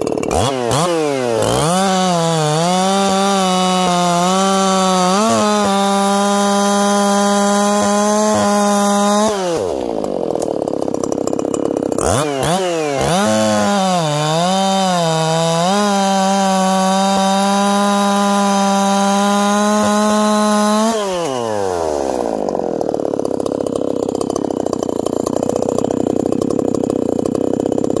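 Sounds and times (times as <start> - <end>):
chainsaw cutting log: 0.0 - 28.0
chainsaw engine winding down to idle: 0.0 - 28.0.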